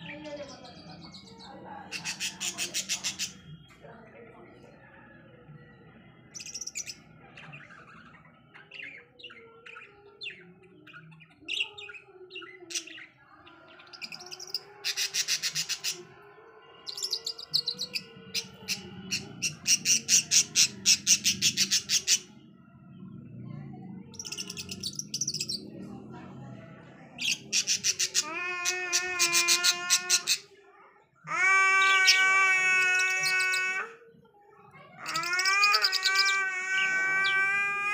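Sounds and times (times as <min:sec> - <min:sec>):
budgerigars chattering: 0:01.9 - 0:03.4.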